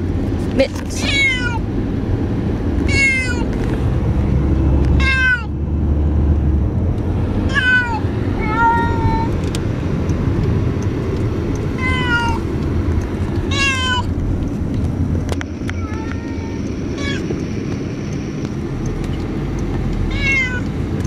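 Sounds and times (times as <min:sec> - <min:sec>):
low rumble of moving car: 0:00.0 - 0:21.0
cat meowing in distress: 0:01.0 - 0:01.6, 0:02.9 - 0:03.5, 0:05.0 - 0:05.5, 0:07.5 - 0:09.4, 0:11.8 - 0:12.4, 0:13.5 - 0:14.1, 0:15.7 - 0:17.2, 0:20.1 - 0:20.7.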